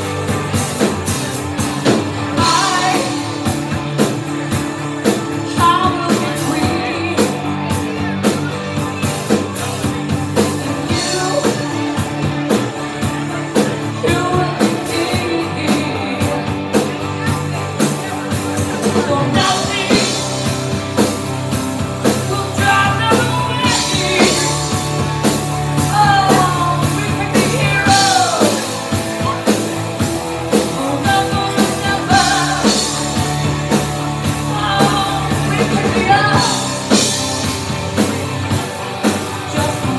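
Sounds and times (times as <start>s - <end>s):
bass guitar: 0.0s - 39.9s
drum kit beat: 0.0s - 39.9s
electric guitar: 0.0s - 39.9s
woman singing: 2.3s - 3.4s, 5.5s - 7.5s, 10.7s - 11.7s, 14.0s - 16.5s, 18.8s - 20.3s, 22.1s - 24.7s, 25.8s - 28.7s, 30.6s - 33.2s, 34.2s - 37.0s, 39.3s - 39.9s.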